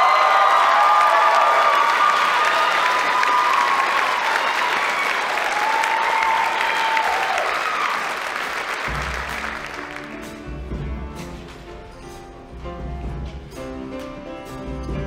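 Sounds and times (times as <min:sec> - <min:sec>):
audience applause and cheering: 0:00.0 - 0:11.7.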